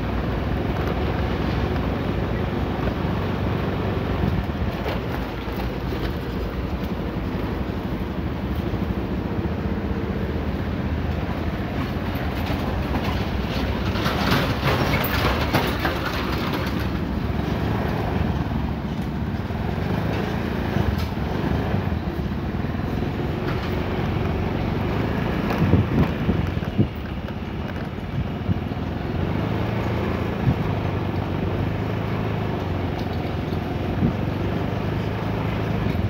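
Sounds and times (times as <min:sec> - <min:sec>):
motorcycle knocks and rattles: 0:04.2 - 0:07.9, 0:11.6 - 0:18.0, 0:23.4 - 0:29.0.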